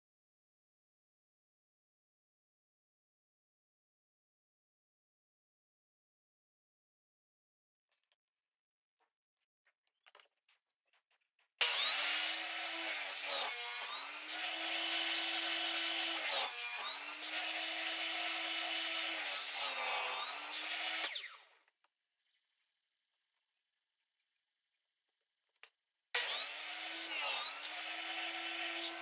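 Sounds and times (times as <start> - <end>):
table saw motor whine: 11.6 - 21.5, 26.2 - 29.0.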